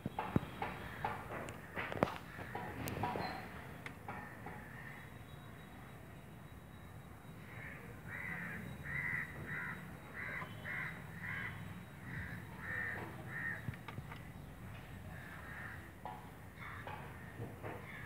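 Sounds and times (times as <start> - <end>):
crow cawing: 7.4 - 13.7, 15.1 - 16.0, 16.6 - 18.0.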